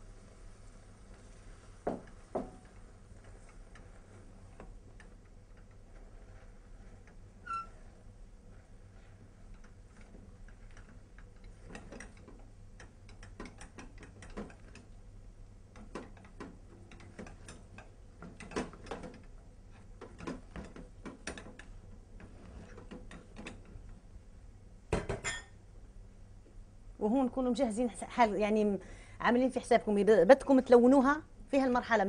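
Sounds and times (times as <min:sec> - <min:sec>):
wooden spatula scraping saucepan: 0:01.0 - 0:12.4, 0:15.9 - 0:23.8.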